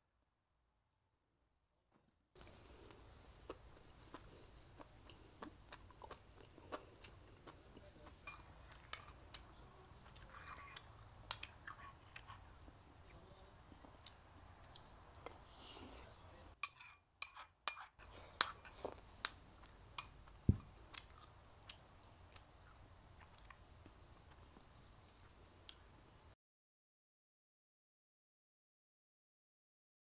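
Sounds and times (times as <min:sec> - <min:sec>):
quiet chewing: 0:02.4 - 0:16.6, 0:17.2 - 0:26.2
ceramic spoon clinking on bowl: 0:08.2 - 0:09.2, 0:16.6 - 0:19.4, 0:20.0 - 0:20.7.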